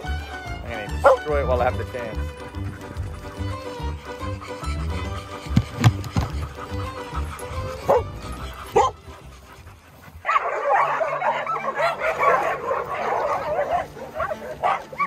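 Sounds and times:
dogs yipping and barking: 0.0s - 15.0s
dog yelps: 1.0s - 1.3s, 2.9s - 15.0s.

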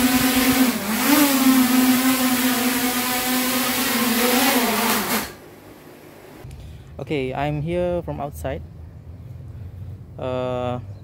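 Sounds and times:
quadcopter motors whining: 0.0s - 5.4s.

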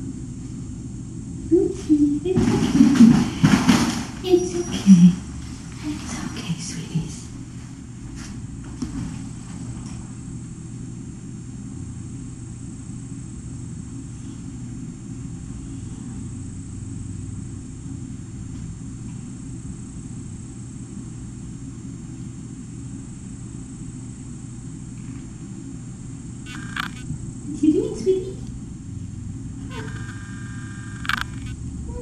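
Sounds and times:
low hum and rumble: 0.0s - 32.0s
faint high whine: 9.0s - 32.0s.

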